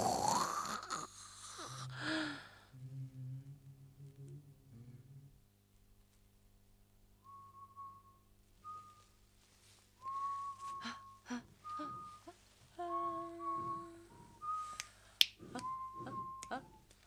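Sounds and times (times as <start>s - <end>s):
lower accompanying notes: 2.7s - 5.5s
person whistling a slow tune: 7.2s - 9.2s, 10.0s - 17.0s.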